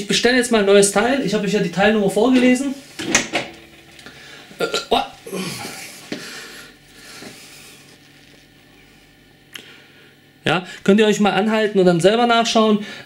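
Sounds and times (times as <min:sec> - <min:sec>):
person grunting: 0:04.5 - 0:06.7.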